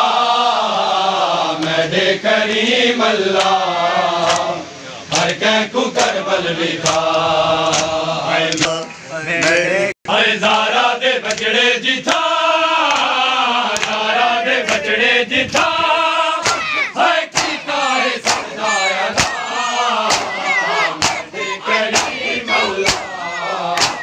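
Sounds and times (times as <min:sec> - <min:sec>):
men chanting together: 0:00.0 - 0:24.0
sharp regular beats: 0:16.4 - 0:24.0.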